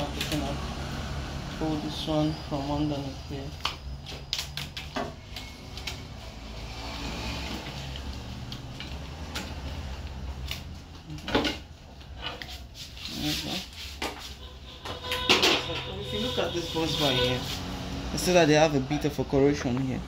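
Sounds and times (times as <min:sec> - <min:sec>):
clicks and knocks of handled parts: 0:03.6 - 0:06.1, 0:07.5 - 0:12.6
metal piece scraping and rubbing: 0:12.1 - 0:17.8.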